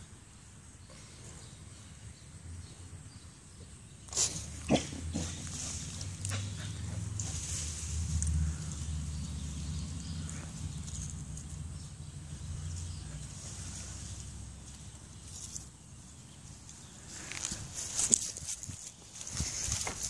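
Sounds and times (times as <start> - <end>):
dog sniffing: 4.1 - 7.7.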